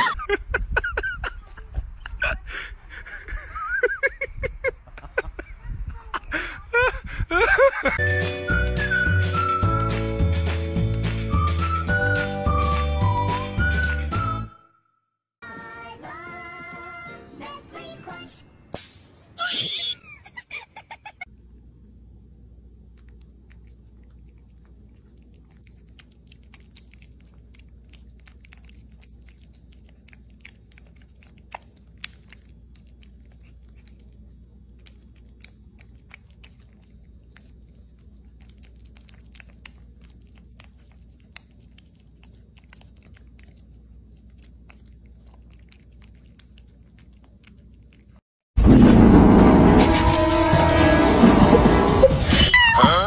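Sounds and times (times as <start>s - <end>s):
low hum: 48.6s - 53.0s.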